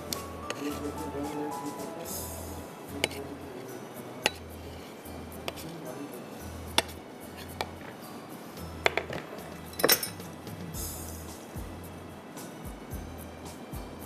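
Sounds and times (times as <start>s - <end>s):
quiet background music: 0.0s - 14.0s
knife clinking on metal tray: 9.0s - 10.3s.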